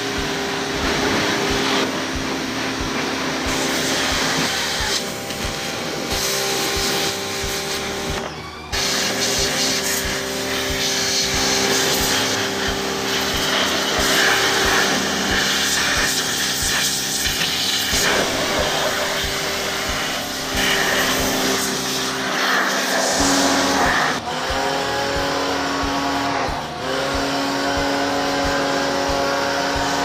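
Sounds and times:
pressure washer pump humming: 0.0s - 30.0s
water jet hissing on metal: 2.6s - 7.8s, 8.8s - 24.2s.

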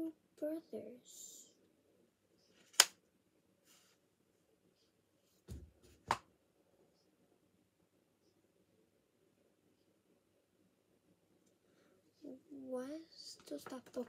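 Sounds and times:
soft thump: 5.5s - 6.2s.

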